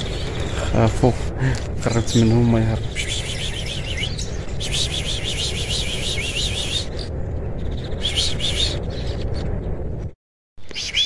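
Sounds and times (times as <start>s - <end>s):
steady low rumble: 0.0s - 10.2s
small bird chirping: 1.8s - 9.4s, 10.6s - 11.0s.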